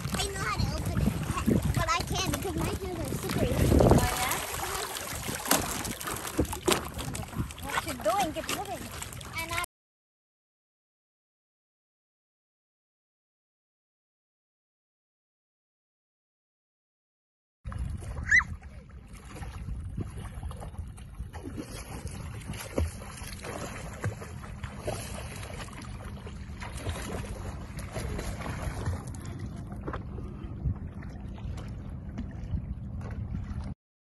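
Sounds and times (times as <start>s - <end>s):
wind buffeting the microphone: 0.0s - 8.9s, 17.7s - 22.9s, 27.0s - 33.7s
water splashing and lapping: 0.0s - 9.7s, 17.7s - 33.8s.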